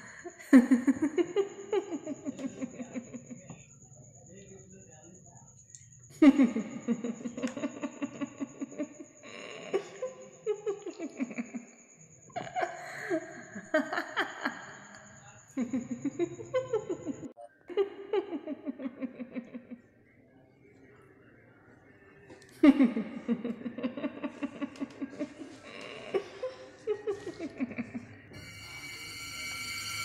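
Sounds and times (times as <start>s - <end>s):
person laughing: 0.0s - 3.5s, 6.2s - 11.6s, 12.4s - 15.0s, 15.6s - 19.8s, 22.6s - 28.1s.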